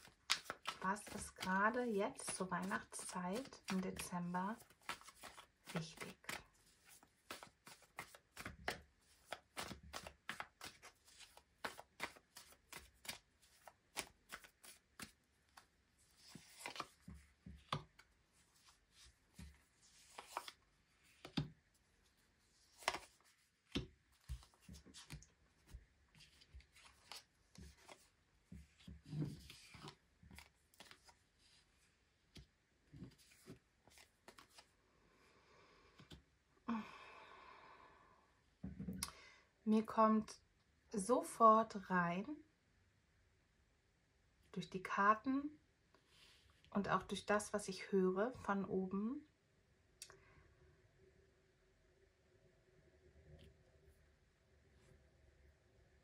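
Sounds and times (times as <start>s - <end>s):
cards sliding and tapping: 0.0s - 1.4s, 2.2s - 18.1s, 21.2s - 21.5s, 22.7s - 28.1s
cards being shuffled: 0.0s - 21.5s, 22.6s - 28.1s, 28.7s - 31.2s, 32.3s - 34.7s.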